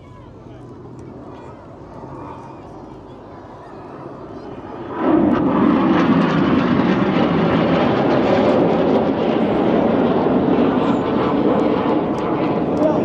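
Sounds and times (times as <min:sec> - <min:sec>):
jet noise rushing: 0:04.2 - 0:13.0.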